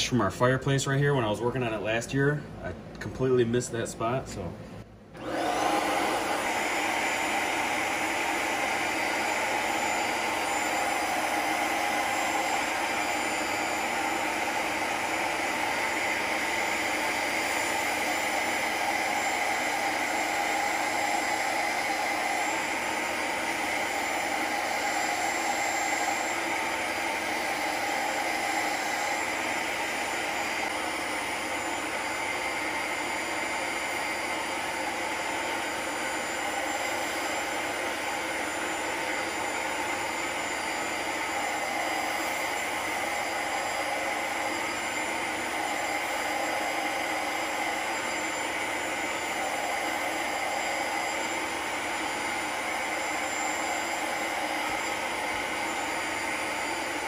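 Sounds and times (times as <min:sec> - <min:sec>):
carpet cleaner suction motor: 0:05.2 - 0:57.0.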